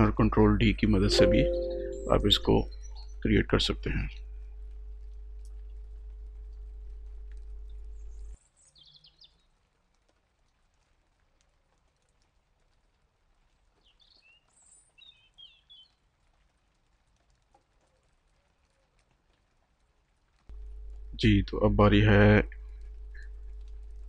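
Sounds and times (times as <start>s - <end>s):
low electrical hum: 0.0s - 8.4s, 20.5s - 24.0s.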